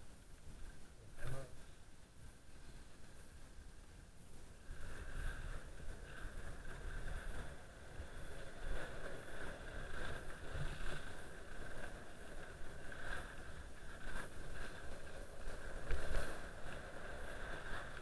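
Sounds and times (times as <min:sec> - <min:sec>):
skis scraping over snow: 0:04.3 - 0:18.0
wind buffeting microphone: 0:04.4 - 0:18.0.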